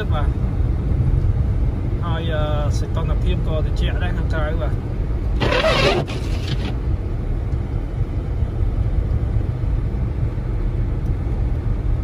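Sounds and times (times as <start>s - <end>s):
car engine and tyres rumbling: 0.0s - 12.0s
windshield wiper swish: 5.4s - 6.8s.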